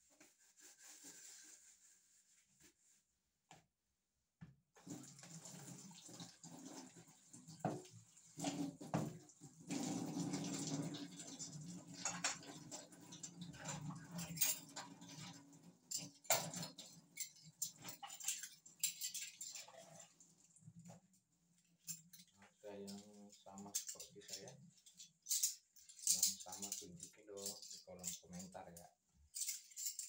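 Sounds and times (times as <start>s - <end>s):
tap water running and splashing: 4.8s - 21.1s
dishes knocking and clattering: 7.6s - 9.2s, 11.9s - 19.9s.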